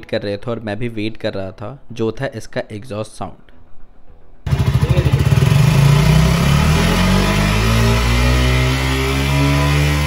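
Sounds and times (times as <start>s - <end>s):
motorcycle engine revving: 4.5s - 10.0s.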